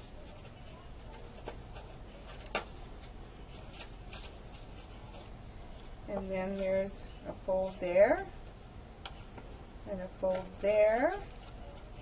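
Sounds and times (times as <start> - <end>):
paper rustling: 0.0 - 7.8, 10.3 - 12.0.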